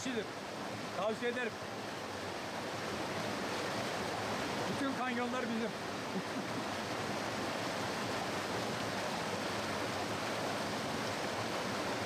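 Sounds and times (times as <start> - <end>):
waterfall rushing over rocks: 0.0 - 12.0.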